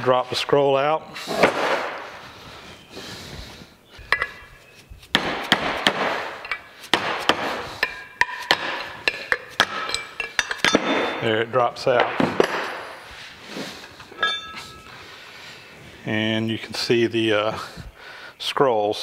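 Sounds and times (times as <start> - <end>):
short metallic rings: 7.8 - 11.4, 14.1 - 15.0.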